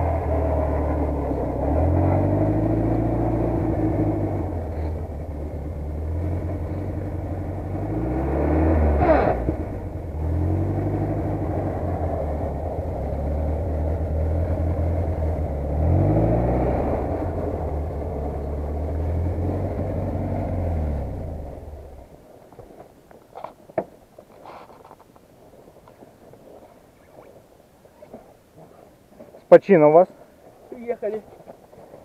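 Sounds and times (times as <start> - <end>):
vehicle engine running: 0.0 - 22.3.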